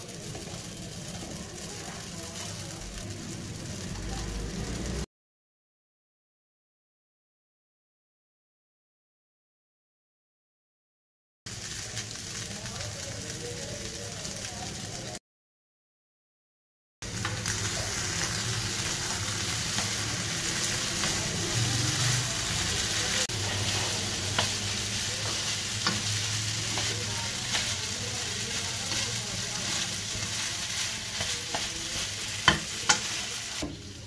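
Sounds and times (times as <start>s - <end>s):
noodles sizzling in a frying pan: 0.0s - 5.1s, 11.5s - 15.2s, 17.0s - 34.0s.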